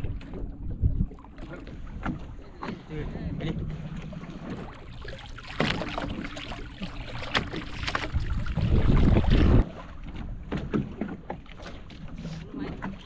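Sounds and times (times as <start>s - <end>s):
fish splashing in water: 4.4s - 9.9s.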